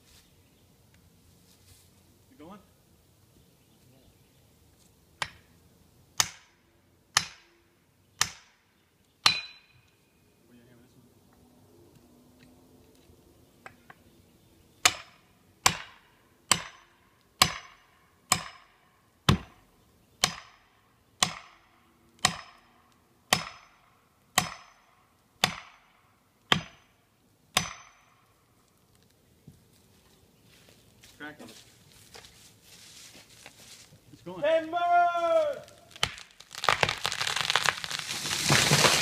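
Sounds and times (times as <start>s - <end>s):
metal-on-metal maul strikes: 9.2s - 9.8s, 14.8s - 19.6s, 22.2s - 22.7s, 23.3s - 26.9s, 27.6s - 28.2s.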